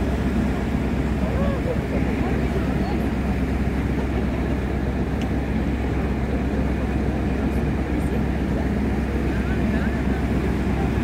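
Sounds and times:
boat engine rumble: 0:00.0 - 0:11.0.

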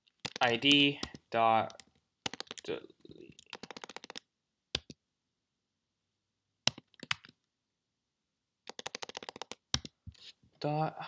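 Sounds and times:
computer keyboard keystrokes: 0:00.2 - 0:02.7, 0:03.4 - 0:04.2, 0:06.7 - 0:07.4, 0:08.7 - 0:10.0.

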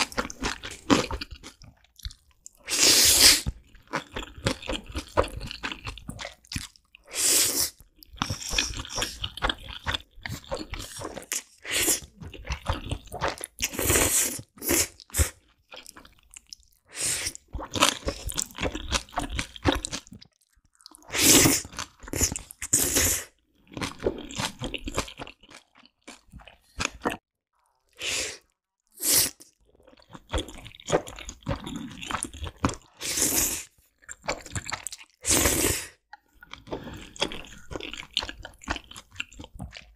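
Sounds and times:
wet chewing: 0:00.0 - 0:07.1, 0:07.7 - 0:27.2, 0:29.3 - 0:39.9
noodle slurping: 0:21.0 - 0:23.4.

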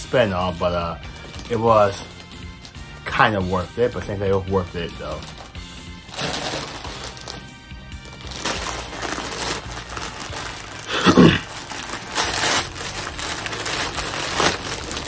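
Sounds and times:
plastic bag crinkling and tearing: 0:01.1 - 0:02.8, 0:04.8 - 0:15.0.

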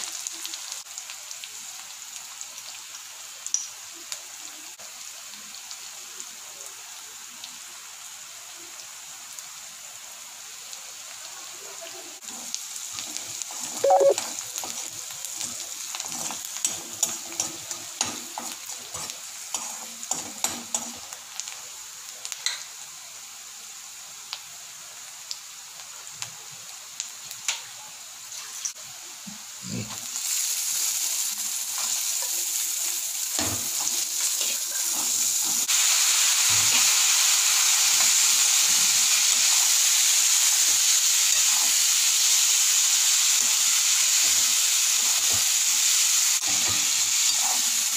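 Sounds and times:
food sizzling in hot oil: 0:00.0 - 0:47.9.

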